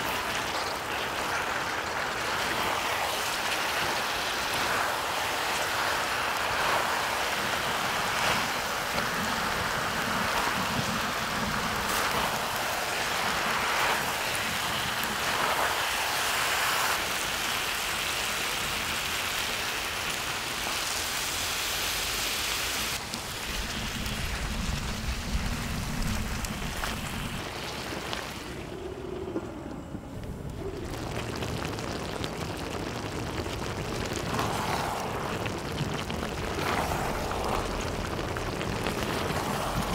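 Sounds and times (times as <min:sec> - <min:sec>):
food sizzling on hot metal: 0:00.0 - 0:27.9, 0:30.6 - 0:39.9
water pouring: 0:30.2 - 0:39.9.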